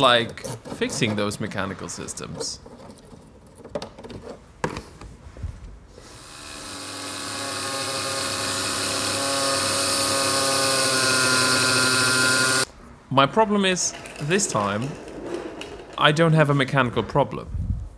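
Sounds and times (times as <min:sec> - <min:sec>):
power tool whining: 0:06.0 - 0:12.7.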